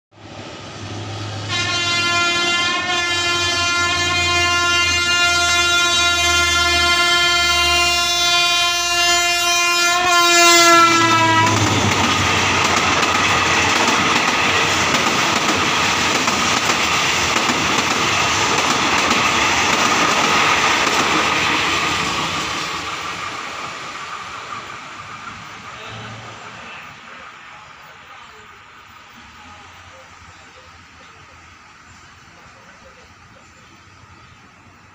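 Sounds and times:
train coaches rolling on rails: 0.2s - 34.9s
locomotive horn blast: 1.3s - 12.3s.

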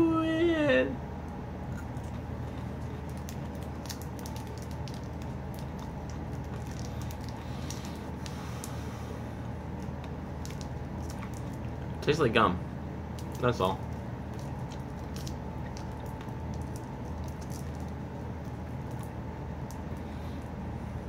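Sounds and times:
steady low hum: 0.0s - 21.0s
person chewing gum: 1.6s - 12.0s, 13.1s - 20.6s.

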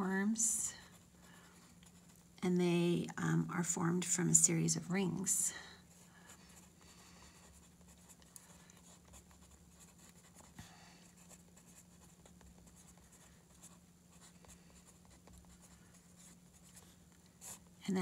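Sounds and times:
pen scratching on paper: 7.3s - 17.7s.

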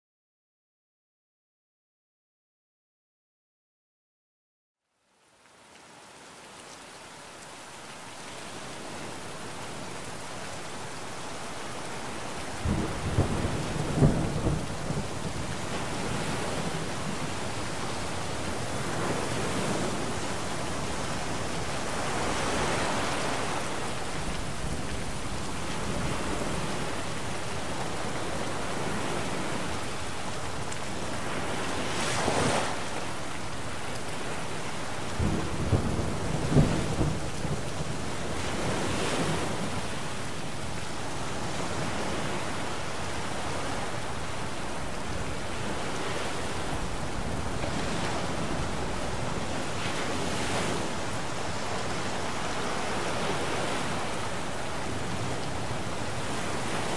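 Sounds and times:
steady rain: 4.8s - 56.9s
rushing surges of rain: 4.9s - 56.9s
low rolls of thunder: 12.5s - 29.8s, 34.5s - 40.1s.

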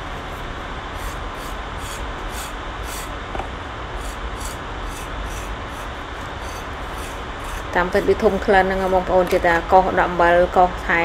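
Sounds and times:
rubbing or scraping strokes: 0.0s - 3.2s, 4.0s - 9.0s
steady hiss: 0.0s - 10.2s.

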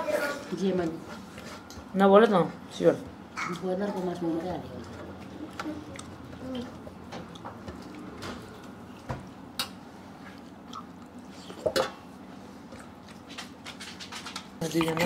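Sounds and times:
chewing: 3.4s - 11.8s.

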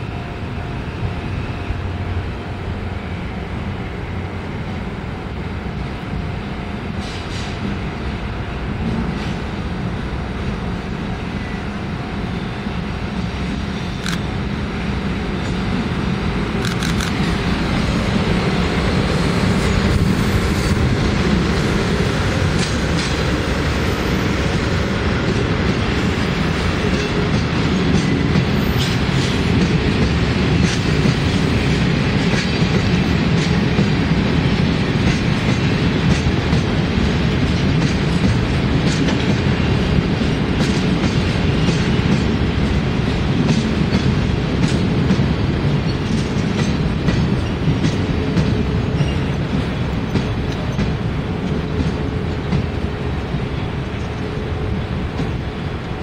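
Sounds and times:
diesel locomotive passing: 0.0s - 56.0s
train wheels clacking over rail joints: 18.4s - 54.4s.

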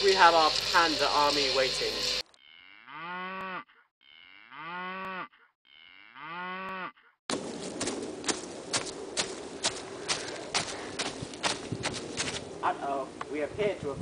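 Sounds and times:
cow mooing: 2.4s - 7.1s.

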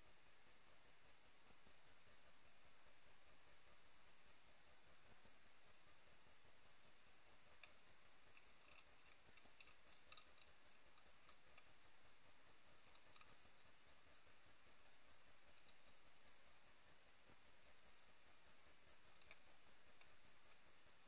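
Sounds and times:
steady low hiss: 0.0s - 21.0s
hedgehogs chewing clicks: 6.4s - 21.0s.

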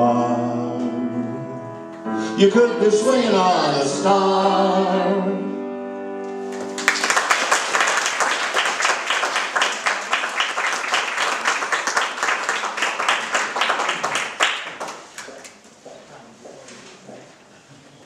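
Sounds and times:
crowd applause: 6.5s - 15.5s.

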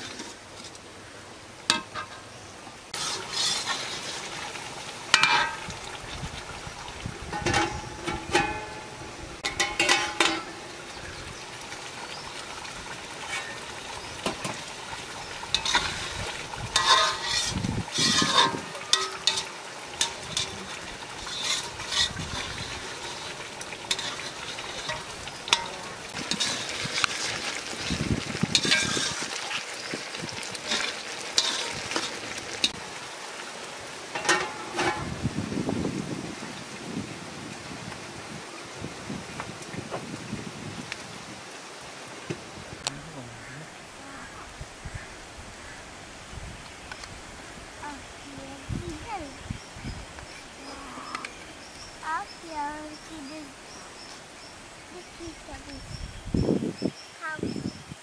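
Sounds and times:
metal lid clanking: 1.7s - 2.2s, 5.1s - 5.7s, 7.3s - 10.7s, 15.5s - 16.0s, 16.7s - 23.3s, 23.9s - 26.7s, 28.5s - 29.2s, 34.1s - 35.1s
food sizzling in metal pot: 2.9s - 35.3s, 47.8s - 56.2s
metal spatula scraping pot: 3.0s - 4.4s, 7.3s - 10.6s, 13.2s - 13.6s, 15.5s - 29.6s, 30.6s - 32.8s.

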